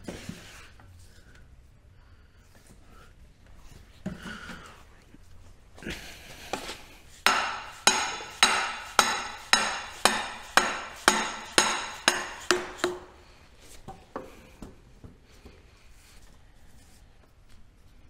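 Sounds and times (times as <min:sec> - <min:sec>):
hammer blows with metallic ring: 0:07.2 - 0:13.2.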